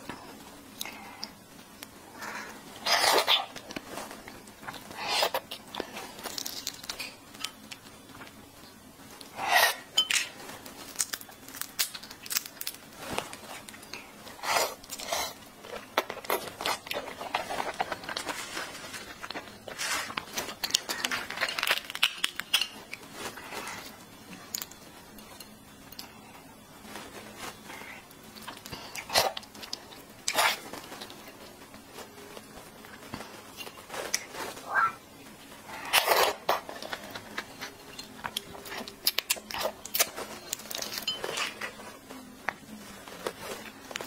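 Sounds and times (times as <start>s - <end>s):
shrimp shell crackling and snapping: 10.9s - 12.8s, 20.6s - 22.8s.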